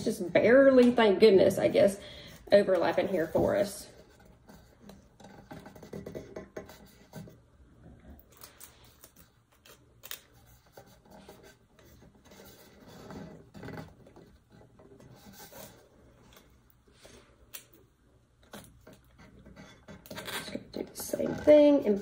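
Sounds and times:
tape handling noises: 0:08.2 - 0:11.0.

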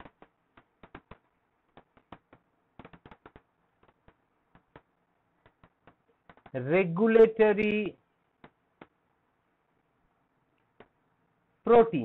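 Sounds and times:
stylus tapping on pen tablet: 0:00.0 - 0:06.6, 0:08.4 - 0:09.0, 0:10.7 - 0:11.0.

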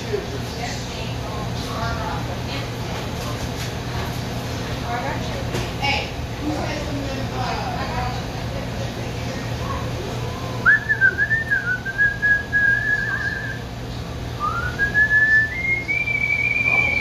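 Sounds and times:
kitchen exhaust hood humming: 0:00.0 - 0:17.0
man whistling a tune: 0:10.6 - 0:13.6, 0:14.4 - 0:17.0.

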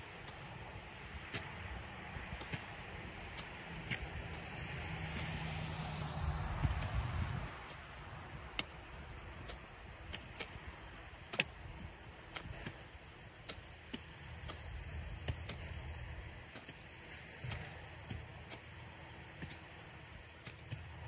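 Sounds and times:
hoe scraping soil: 0:00.2 - 0:21.0
hoe chopping into soil: 0:05.0 - 0:21.0.

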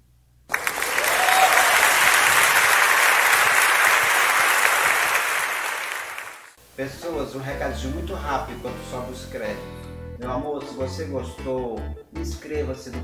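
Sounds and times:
audience applause: 0:00.5 - 0:06.6.

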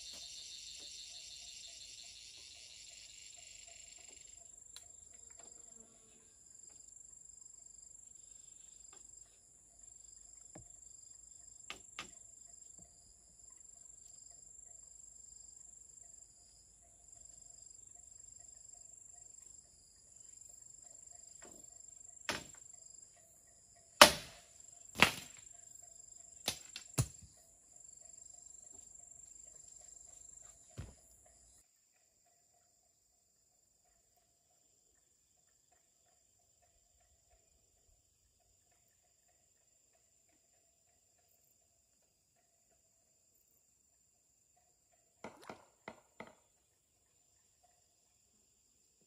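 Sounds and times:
insect drone with pulsing chirp: 0:00.0 - 0:49.0
knocks on wooden pole: 0:45.2 - 0:46.4.

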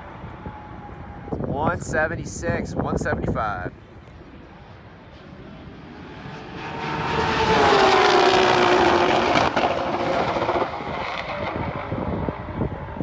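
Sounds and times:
wind: 0:00.0 - 0:13.0
racing cars passing at speed: 0:04.6 - 0:13.0.

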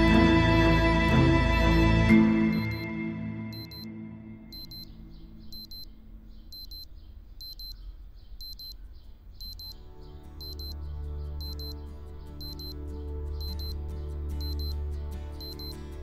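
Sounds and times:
soft background music: 0:00.0 - 0:06.9, 0:08.9 - 0:16.0
alarm clock beeping: 0:01.5 - 0:03.9, 0:04.5 - 0:07.8, 0:08.4 - 0:08.8, 0:09.4 - 0:09.8, 0:10.4 - 0:10.8, 0:11.4 - 0:11.8, 0:12.4 - 0:12.8, 0:13.4 - 0:13.8, 0:14.4 - 0:14.8, 0:15.4 - 0:15.8.

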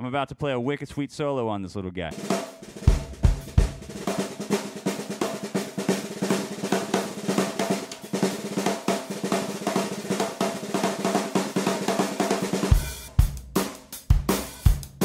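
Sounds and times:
snare drum played fast: 0:02.1 - 0:15.0.

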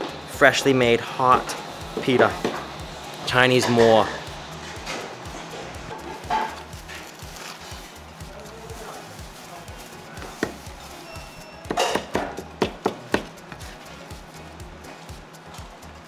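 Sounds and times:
cleaver chopping on cutting board: 0:10.2 - 0:10.6, 0:11.7 - 0:13.4.

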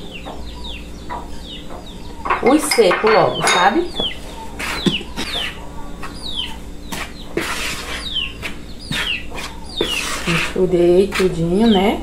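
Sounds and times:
chickens calling: 0:00.0 - 0:12.0
ingredients stirred in a bowl: 0:06.9 - 0:12.0.

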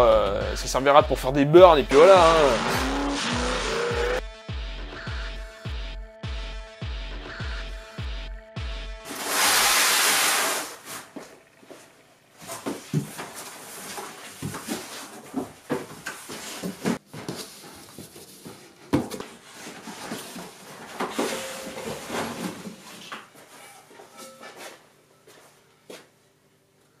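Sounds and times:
cardboard and packaging rustling: 0:12.4 - 0:24.3.

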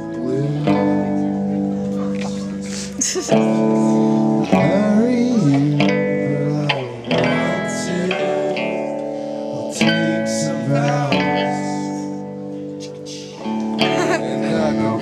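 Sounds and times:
electric guitar chords: 0:00.0 - 0:15.0
live band playing: 0:12.2 - 0:14.6.

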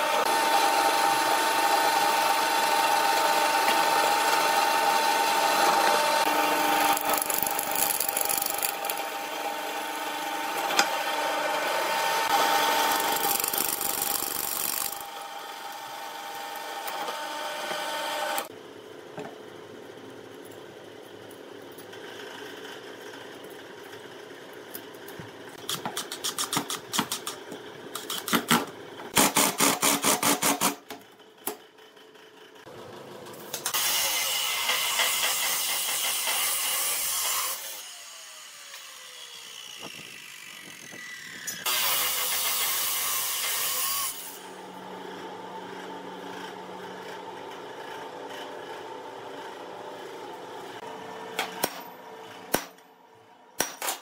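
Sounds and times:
chop saw cutting steel: 0:00.0 - 0:18.5, 0:28.0 - 0:30.9, 0:33.6 - 0:44.6.

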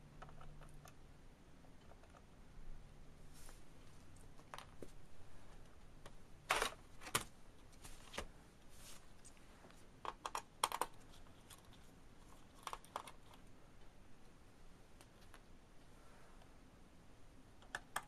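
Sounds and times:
screwdriver and screws clicking on plastic: 0:10.0 - 0:11.7.

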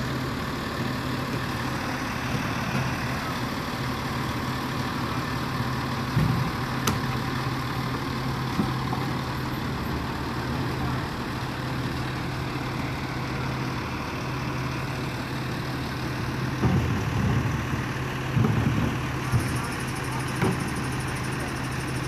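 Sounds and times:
garbage truck engine idling: 0:00.0 - 0:22.0.

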